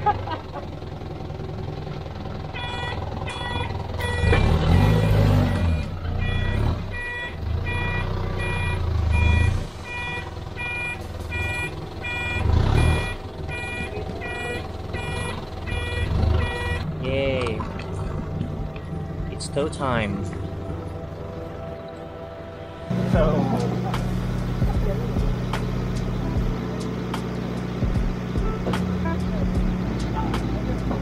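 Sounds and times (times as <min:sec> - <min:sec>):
truck engine revving: 0:00.0 - 0:31.0
reverse alarm beeping: 0:02.6 - 0:16.9.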